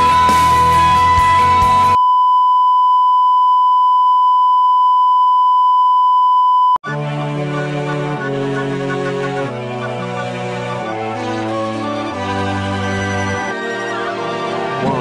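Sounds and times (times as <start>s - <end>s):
rock music: 0.0s - 2.0s
television test tone beep: 2.0s - 6.8s
soft music: 6.9s - 15.0s.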